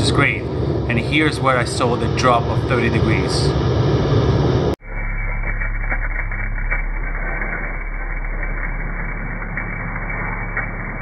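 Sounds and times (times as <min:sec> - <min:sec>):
machine humming: 0:00.0 - 0:11.0
crackling clicks: 0:05.0 - 0:11.0.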